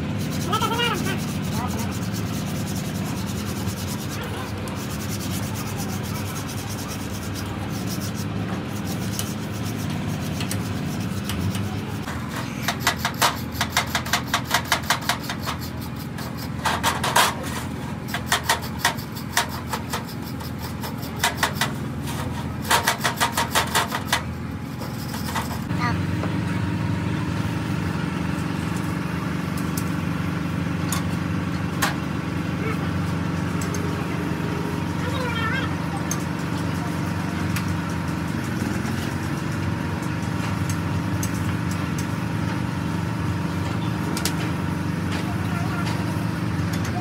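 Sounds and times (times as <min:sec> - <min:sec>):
brush scrubbing metal parts: 0:00.0 - 0:25.7
steady low hum: 0:00.0 - 0:47.0.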